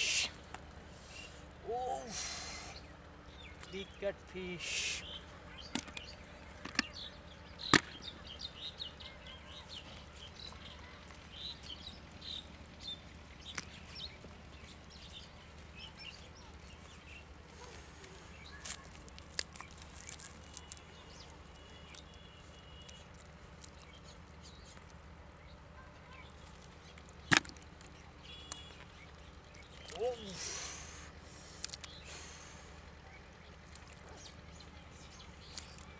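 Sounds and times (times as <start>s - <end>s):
steady low hum: 0.0s - 22.4s
birds chirping: 0.0s - 35.9s.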